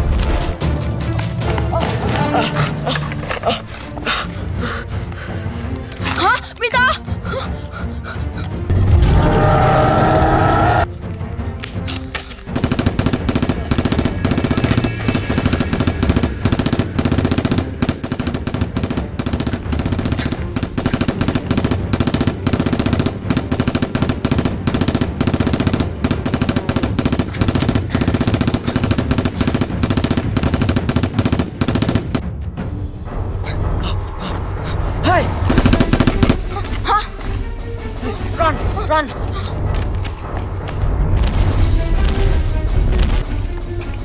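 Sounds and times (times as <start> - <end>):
music: 0.0 - 44.0
rapid automatic gunfire: 12.5 - 32.2, 35.5 - 36.5.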